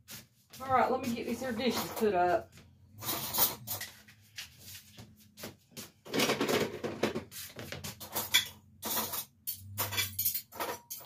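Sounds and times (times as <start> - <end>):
dishes and utensils clattering: 3.0 - 4.0, 6.1 - 7.2, 7.8 - 11.0.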